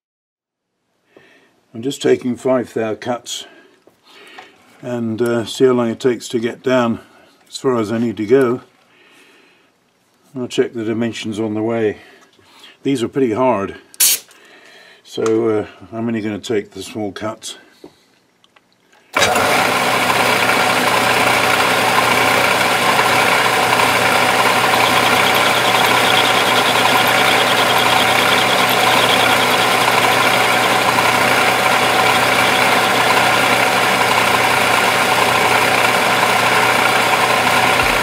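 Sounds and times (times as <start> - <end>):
lathe tool cutting steel: 19.2 - 38.0
metal lathe running: 19.2 - 38.0.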